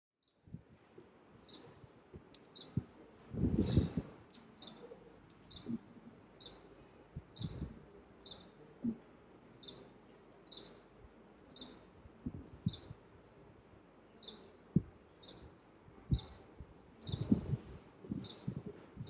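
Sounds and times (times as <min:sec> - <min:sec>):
bird chirping: 0:01.4 - 0:02.9, 0:03.6 - 0:10.8, 0:11.5 - 0:13.3, 0:14.1 - 0:15.5, 0:16.1 - 0:16.4, 0:17.0 - 0:19.0.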